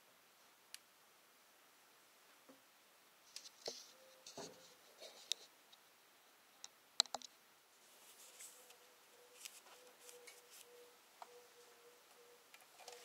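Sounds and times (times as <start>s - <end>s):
cloth rag wiping: 7.8s - 10.8s.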